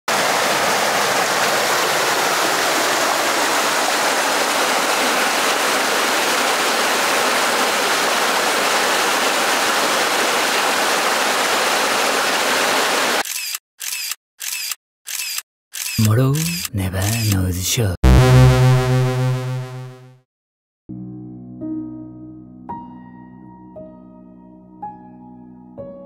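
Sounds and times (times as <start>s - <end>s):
mountain stream rushing: 0.1s - 13.2s.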